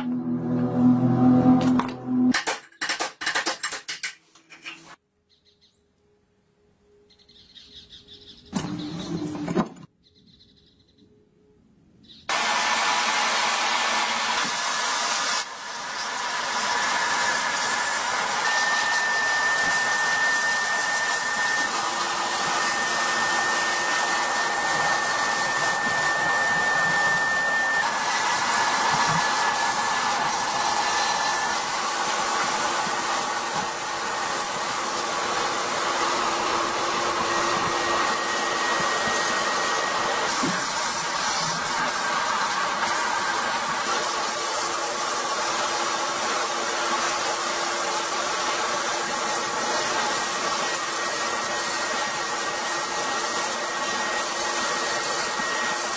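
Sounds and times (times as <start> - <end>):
sandblast gun hissing: 12.3 - 55.9.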